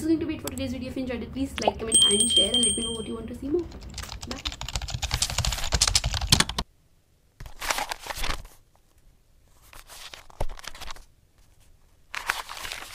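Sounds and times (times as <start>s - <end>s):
rapid keyboard-like clicks: 3.7s - 6.6s
crackly crinkling noise bursts: 7.4s - 12.9s.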